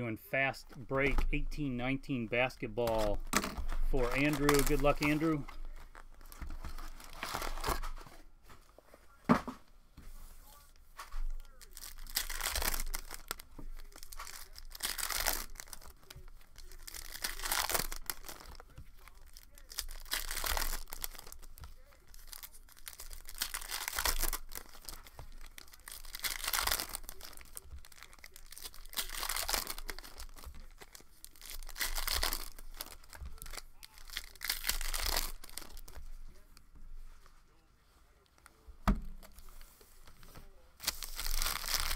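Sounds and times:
foil packs tearing and crinkling: 2.9s - 8.0s, 11.4s - 36.4s, 40.8s - 41.9s.

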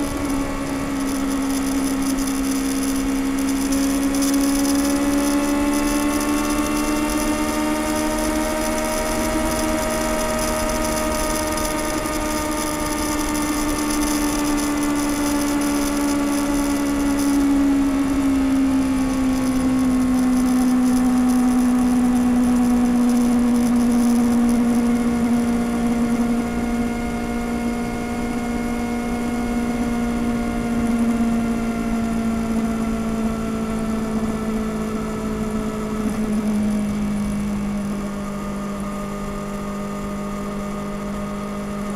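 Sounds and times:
motorcycle engine cruising: 0.0s - 41.9s.

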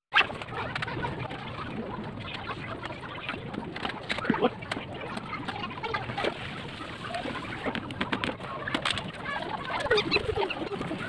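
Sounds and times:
bird cooing: 9.3s - 11.0s.

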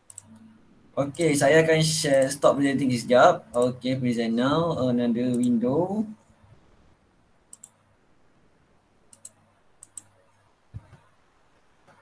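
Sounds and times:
computer mouse clicking: 0.0s - 0.4s, 2.1s - 2.4s, 5.3s - 5.5s, 7.5s - 7.8s, 9.1s - 10.1s.

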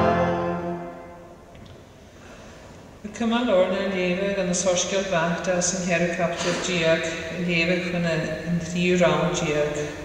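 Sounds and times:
church organ chord: 0.0s - 1.5s.

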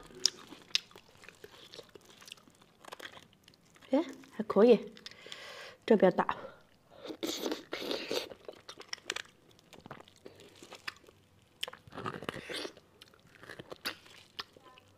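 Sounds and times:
biting and chewing: 0.0s - 4.4s, 7.1s - 14.8s.

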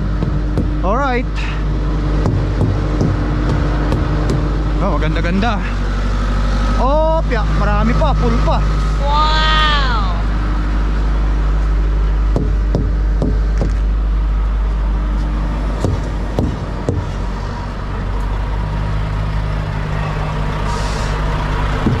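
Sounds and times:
diesel truck engine idling: 0.0s - 22.0s
hammer knocking on truck tires: 0.1s - 0.8s, 2.2s - 4.6s, 12.3s - 13.8s, 15.8s - 17.2s, 21.8s - 22.0s.

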